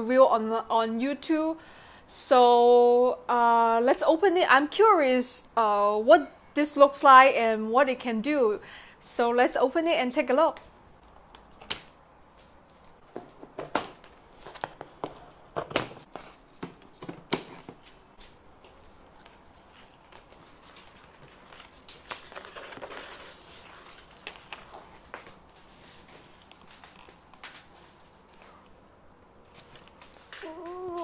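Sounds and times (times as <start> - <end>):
packaging rustling: 19.0 - 28.8.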